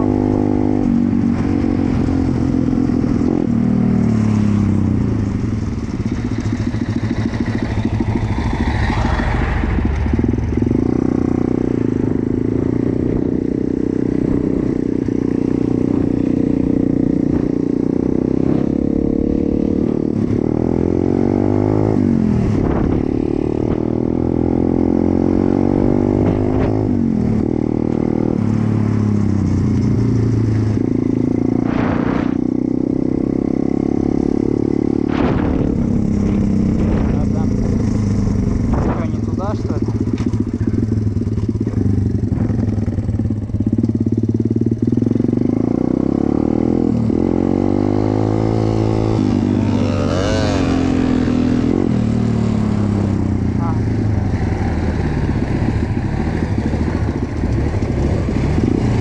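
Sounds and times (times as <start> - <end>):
small motorbike engine running: 34.6 - 45.6, 53.2 - 59.0.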